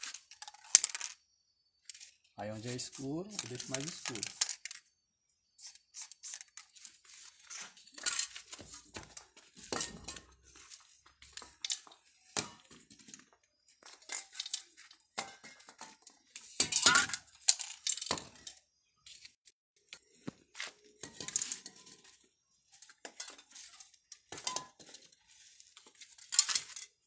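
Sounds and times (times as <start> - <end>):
spray paint hissing: 2.8 - 4.6, 5.6 - 6.8
metal cans clinking together: 3.3 - 4.8, 13.9 - 18.5, 23.0 - 25.1, 26.2 - 27.0.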